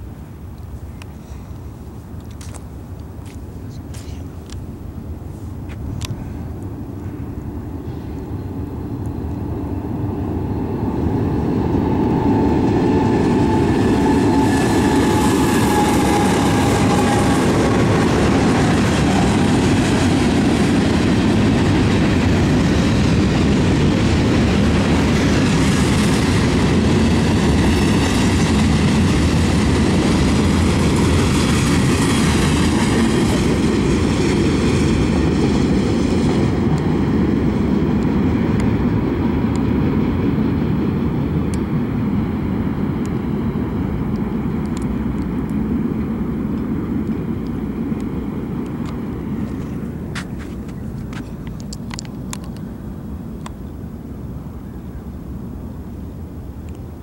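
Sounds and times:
freight train rumble: 0.0 - 57.0
wheels clacking on rails: 9.0 - 52.7.

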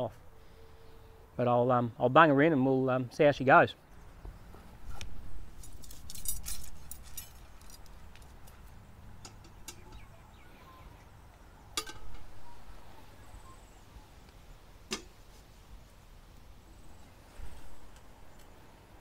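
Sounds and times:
metal clinks and knocks: 5.5 - 10.0.

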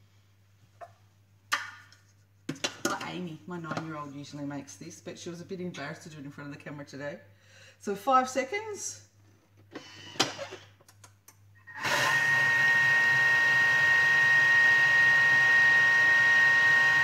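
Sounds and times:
food processor motor whirring: 11.7 - 17.0.

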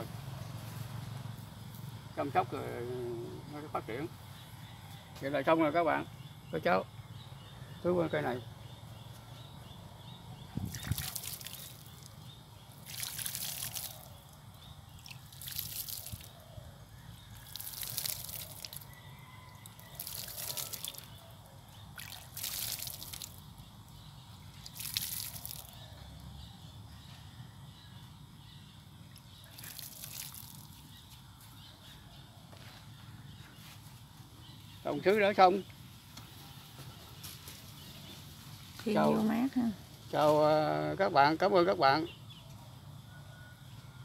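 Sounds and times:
water sprinkling onto soil: 10.6 - 16.4, 17.1 - 19.0, 19.6 - 25.9, 29.4 - 31.2.

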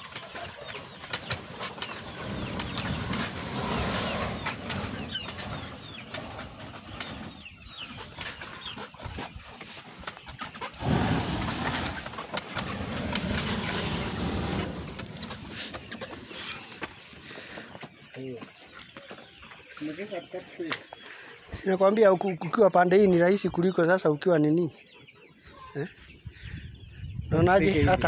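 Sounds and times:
gas torch flame rushing: 1.8 - 5.3, 10.8 - 15.8.

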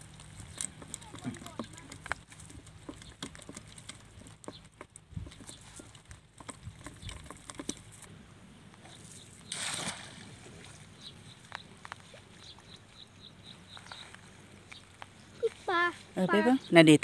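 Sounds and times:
muddy water sloshing: 0.0 - 8.1, 8.8 - 16.2
water splash: 9.5 - 10.9.

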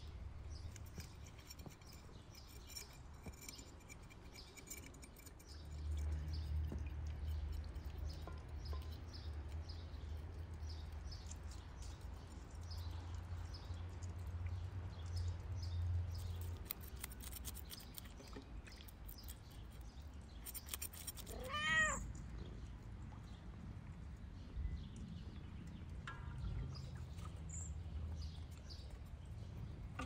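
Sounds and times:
low steady rumble: 0.0 - 16.7
cat meowing: 21.3 - 22.1.

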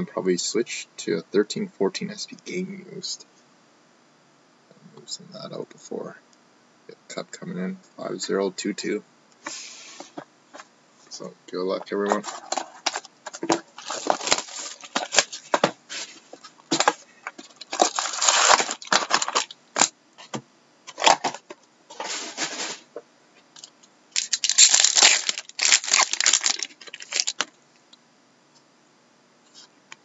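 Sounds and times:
cardboard and wrapper crinkling: 11.8 - 22.9, 24.2 - 27.5
wrapper tearing open: 12.2 - 15.5, 17.6 - 19.9, 24.2 - 27.5.

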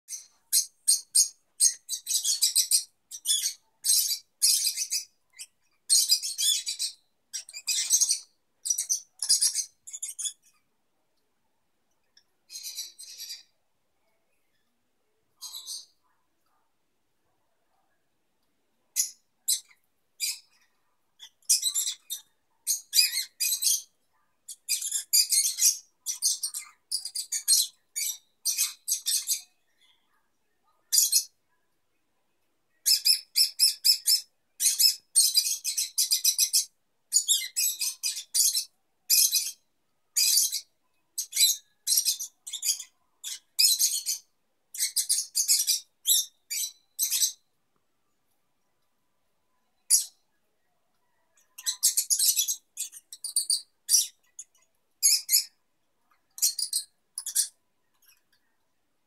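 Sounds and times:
lovebirds chirping: 0.1 - 10.6, 12.1 - 13.6, 18.9 - 31.3, 32.7 - 47.4, 51.3 - 58.4.

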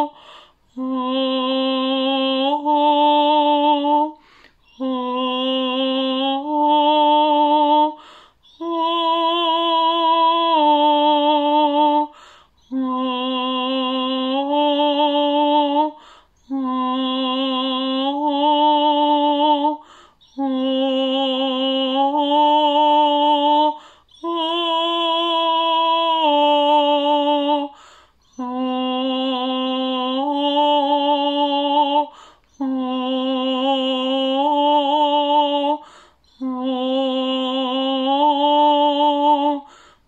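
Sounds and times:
woman singing wordless tones: 0.0 - 39.9
woman breathing: 0.1 - 0.8, 4.1 - 4.8, 7.9 - 8.6, 12.1 - 12.7, 15.9 - 16.5, 19.8 - 20.3, 23.7 - 24.2, 27.7 - 28.3, 32.1 - 32.6, 35.8 - 36.4, 39.6 - 40.0.

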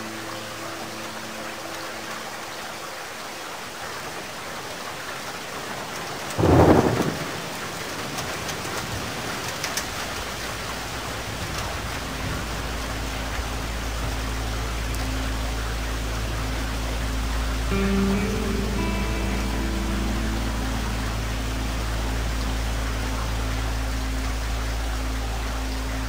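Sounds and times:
falling water rushing: 0.0 - 26.0
low rumble: 11.4 - 26.0.

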